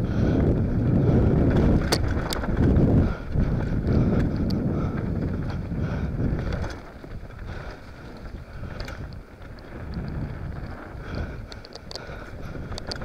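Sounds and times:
bike tyres rolling on dirt: 0.0 - 13.0
wind buffeting microphone: 0.0 - 13.0
light clicks and rattles: 6.3 - 13.0.

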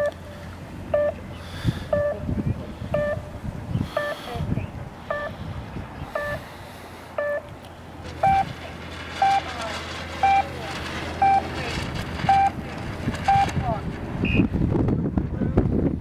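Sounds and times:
electronic timer beeps: 0.9 - 1.2, 1.9 - 2.2, 3.0 - 3.2, 4.0 - 4.2, 5.1 - 5.3, 6.1 - 6.4, 7.2 - 7.5, 8.2 - 8.5, 9.2 - 9.4, 10.2 - 10.4, 11.2 - 11.4, 12.3 - 12.6, 13.3 - 13.5.

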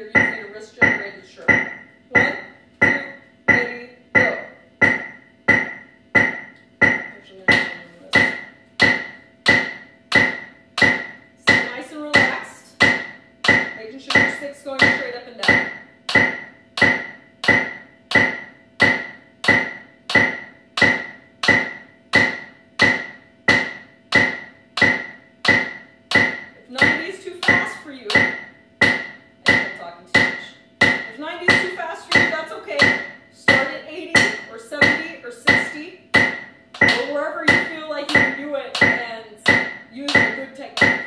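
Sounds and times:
drumstick strokes: 0.0 - 41.0
electronic metronome click: 13.4 - 23.2.

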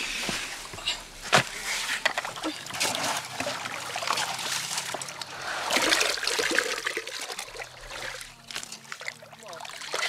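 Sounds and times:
muddy water splashing and trickling: 1.5 - 10.0.

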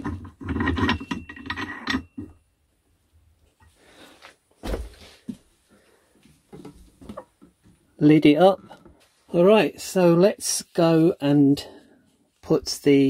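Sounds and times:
metal plate scraping and clicking: 0.0 - 2.4.

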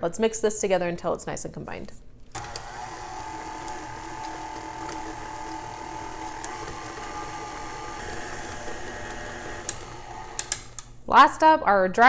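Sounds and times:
stand mixer motor whine: 2.4 - 10.8.

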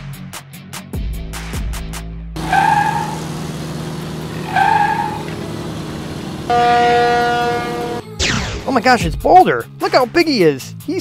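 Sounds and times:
truck engine running: 2.4 - 8.1
truck horn honks: 2.4 - 8.1.

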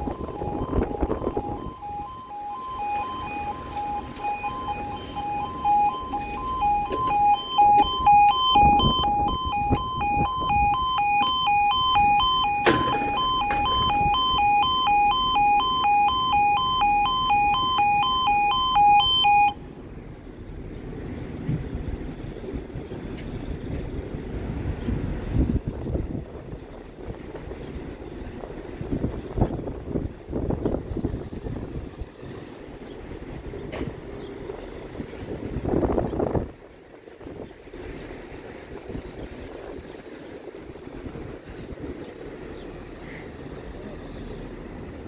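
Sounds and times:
level crossing two-tone alarm: 0.0 - 19.6.

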